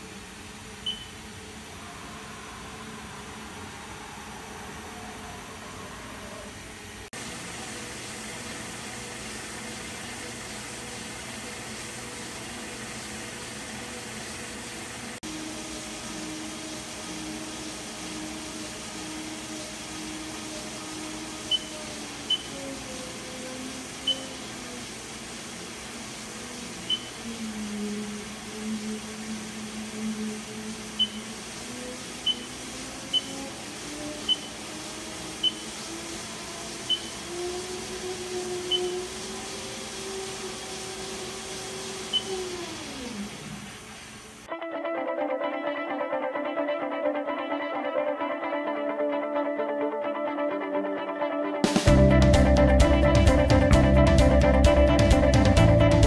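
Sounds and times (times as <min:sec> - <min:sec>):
lathe machine hum: 0:00.0 - 0:44.5.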